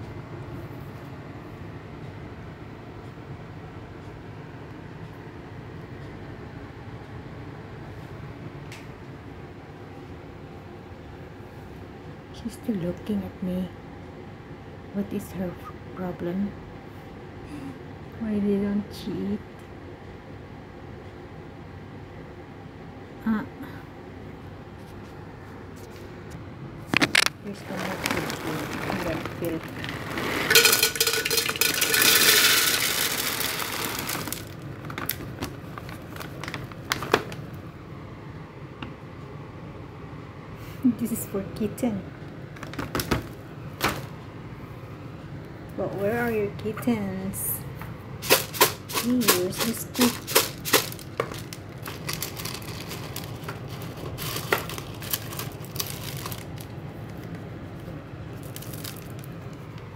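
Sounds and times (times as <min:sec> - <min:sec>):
pellets clicking against metal: 0:27.0 - 0:34.6, 0:48.2 - 0:56.6
kibble pouring into metal tin: 0:27.0 - 0:35.2, 0:48.2 - 0:56.7
kibble clinking: 0:27.0 - 0:35.4, 0:48.2 - 0:56.7.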